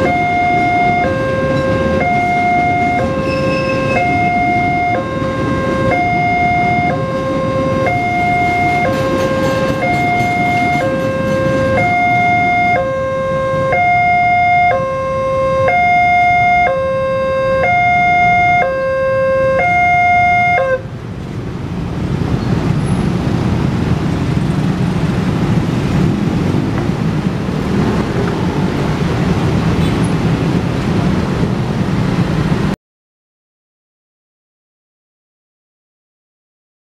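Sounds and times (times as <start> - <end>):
two-tone level crossing alarm: 0.0 - 20.8
motorcycle traffic: 0.0 - 32.8
passing freight train: 0.0 - 32.8.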